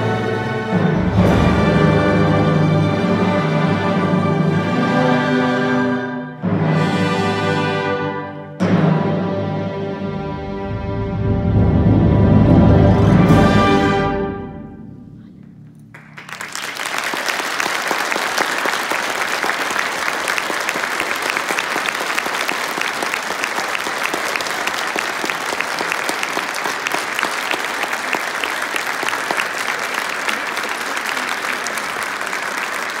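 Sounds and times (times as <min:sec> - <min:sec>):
audience applauding: 0:15.7 - 0:33.0.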